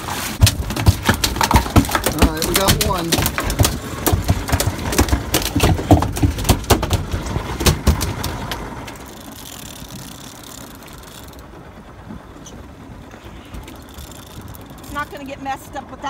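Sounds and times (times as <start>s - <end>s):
fish thrashing on a deck: 0.0s - 10.6s.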